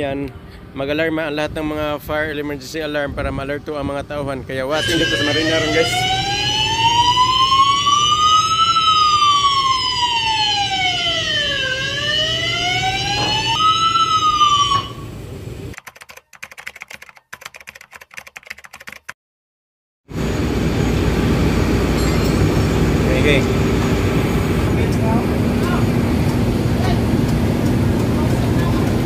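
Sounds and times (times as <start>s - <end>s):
wailing alarm sounder: 4.7s - 15.3s.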